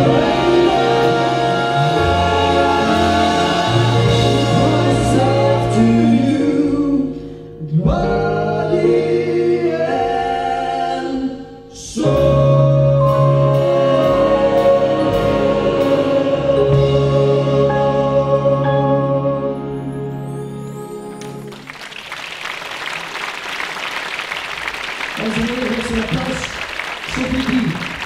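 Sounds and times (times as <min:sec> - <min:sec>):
big band playing jazz: 0:00.0 - 0:07.2, 0:12.0 - 0:21.8
man singing: 0:00.0 - 0:14.8.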